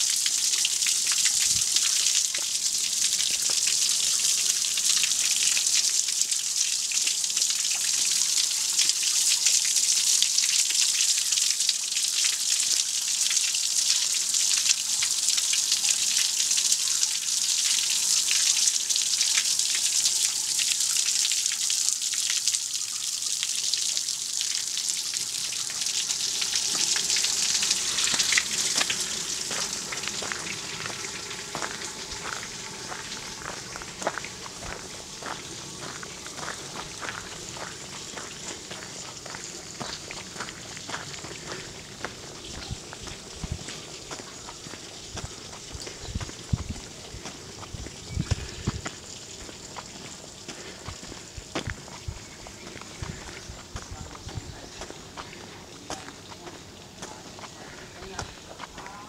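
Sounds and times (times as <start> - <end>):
water splashing into pit: 23.4 - 42.2.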